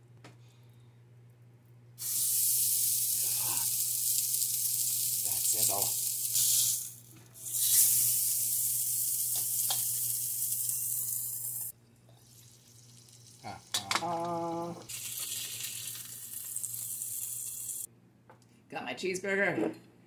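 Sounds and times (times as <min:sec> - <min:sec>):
burger sizzling in skillet: 0:02.0 - 0:17.9.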